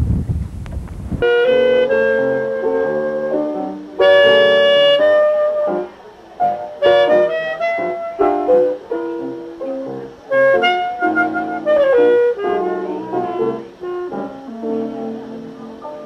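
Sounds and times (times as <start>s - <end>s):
instrumental background music: 1.2s - 16.0s.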